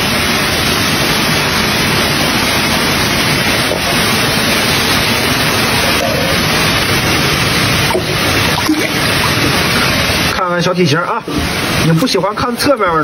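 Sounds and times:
running water rushing: 0.0 - 13.0.

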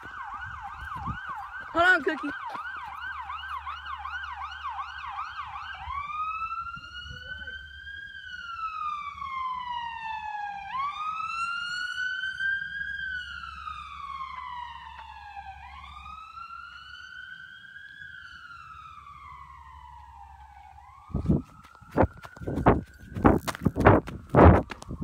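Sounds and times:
emergency vehicle siren wailing: 0.0 - 25.0.

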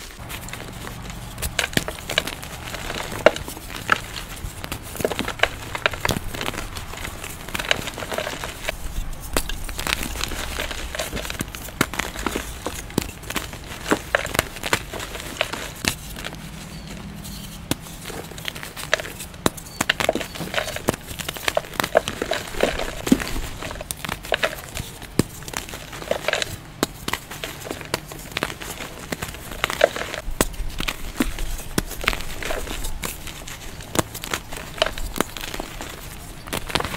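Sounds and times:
chalk blocks crunching by hand: 0.0 - 36.9.

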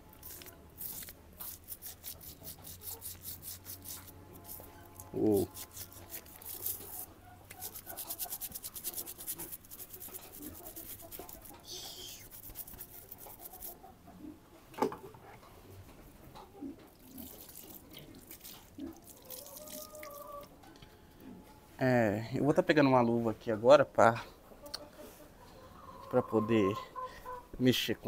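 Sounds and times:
brush scrubbing hoof: 0.2 - 14.0
water pouring from bottle: 17.0 - 20.3.

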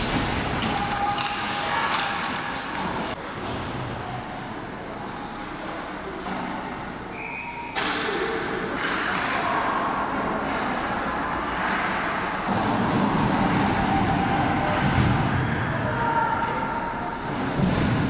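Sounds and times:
skates and sticks on ice: 0.0 - 3.2.

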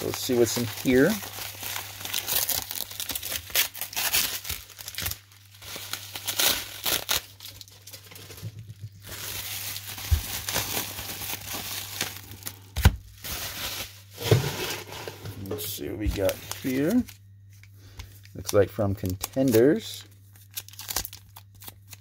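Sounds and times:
bubble wrap crinkling: 0.0 - 22.0
tape tearing: 2.1 - 5.2, 6.1 - 7.6, 20.5 - 22.0.

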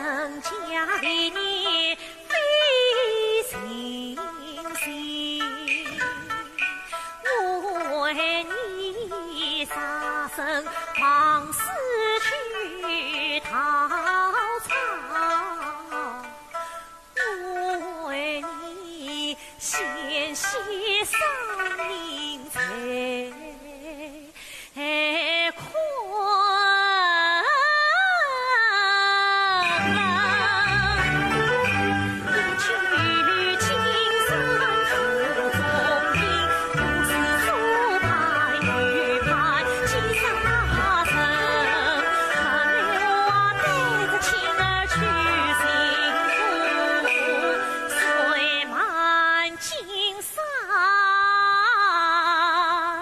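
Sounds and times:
opera instrumental melody: 0.0 - 24.3, 29.4 - 49.6
woman singing opera melismatic phrase: 22.0 - 50.6.

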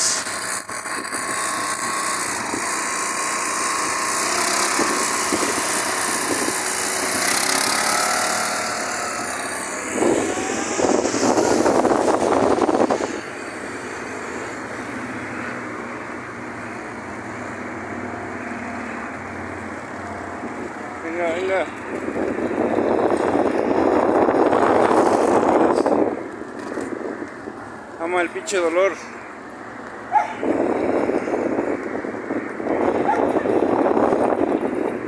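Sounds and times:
street noise: 0.0 - 35.0
motorcycle engine running: 0.2 - 15.2.

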